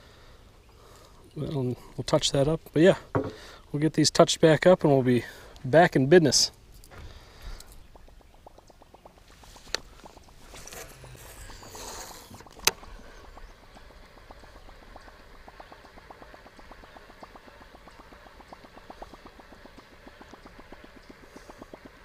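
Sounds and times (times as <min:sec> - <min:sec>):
fishing line paying out: 0:10.3 - 0:14.3.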